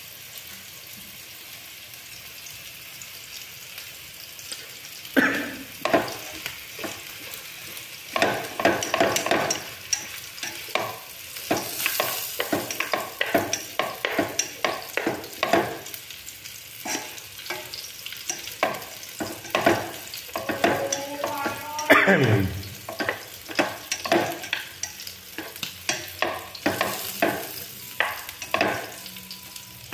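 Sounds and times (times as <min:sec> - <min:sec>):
food sizzling in a pot: 0:00.0 - 0:29.9
chopsticks knocking on pot: 0:18.3 - 0:22.0, 0:22.8 - 0:24.6.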